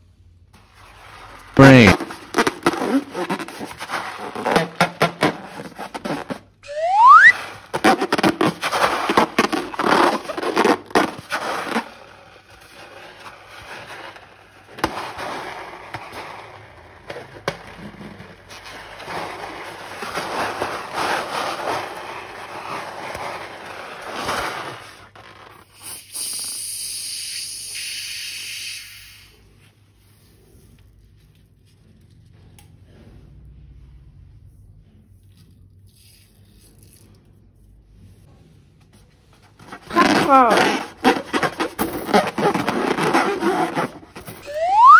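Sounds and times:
slime crackling and scraping: 0:00.6 - 0:25.8, 0:39.5 - 0:44.9.

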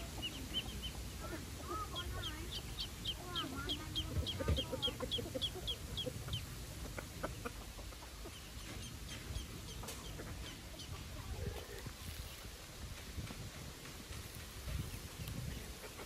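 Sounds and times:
hen calling: 0:00.0 - 0:06.6
chick peeping: 0:00.0 - 0:12.4, 0:13.2 - 0:16.0.

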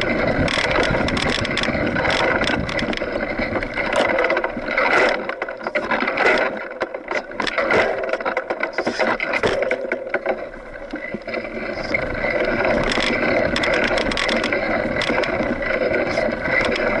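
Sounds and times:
bike rattling clicks: 0:00.0 - 0:17.0
tyre noise on dirt trail: 0:00.0 - 0:17.0.

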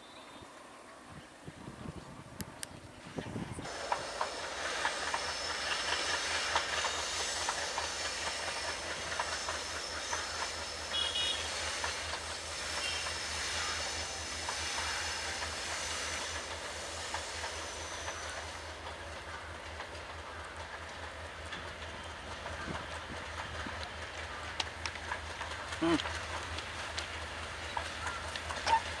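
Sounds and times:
wheels clacking on rails: 0:02.5 - 0:29.0.

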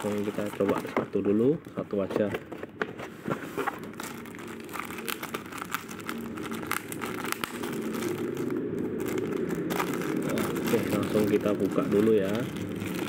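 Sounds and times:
plastic bag crinkling: 0:00.0 - 0:01.8, 0:03.8 - 0:13.0
low rumble: 0:03.8 - 0:13.0.

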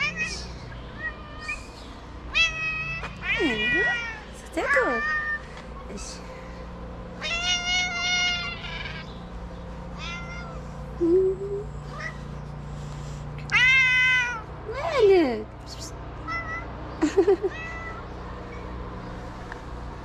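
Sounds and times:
cat meowing: 0:00.0 - 0:01.7, 0:02.3 - 0:04.2, 0:07.2 - 0:09.1, 0:10.0 - 0:10.6, 0:13.5 - 0:14.5, 0:16.2 - 0:16.7, 0:17.5 - 0:18.0.

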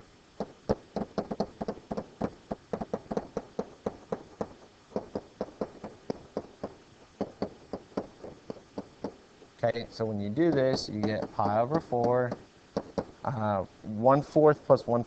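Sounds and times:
stylus tapping on a screen: 0:10.5 - 0:13.1.

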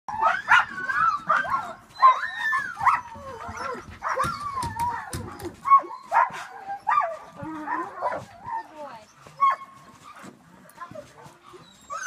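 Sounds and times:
sled dogs yipping and barking: 0:00.1 - 0:12.0.

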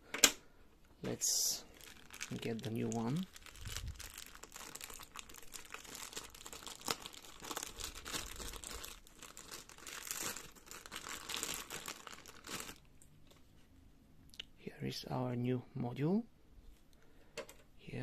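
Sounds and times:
packaging crinkling: 0:01.6 - 0:12.9.

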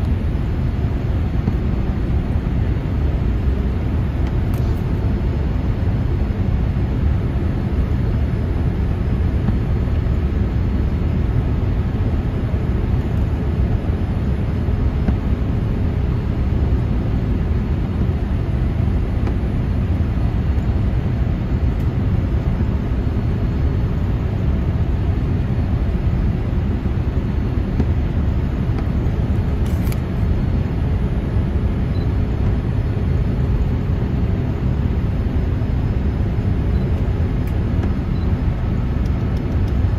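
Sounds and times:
airplane cabin rumble: 0:00.0 - 0:39.9.

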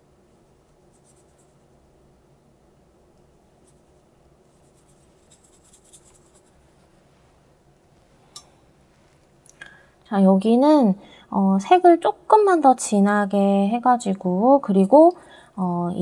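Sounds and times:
brush strokes on paper: 0:03.6 - 0:07.4.

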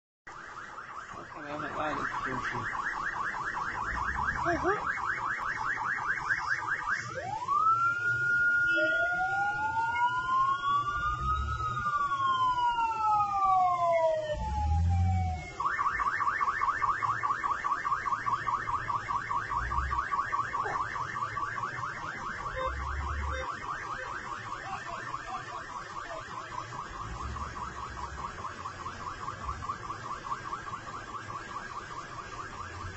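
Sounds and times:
ambulance sirens wailing: 0:00.3 - 0:32.9
low rumbles: 0:18.6 - 0:23.7.

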